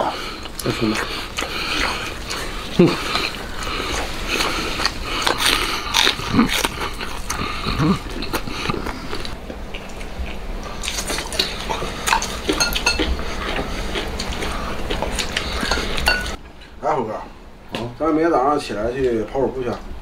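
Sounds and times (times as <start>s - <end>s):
wet chewing and smacking: 0.1s - 16.4s
person humming mm: 2.7s - 3.3s, 7.3s - 9.1s.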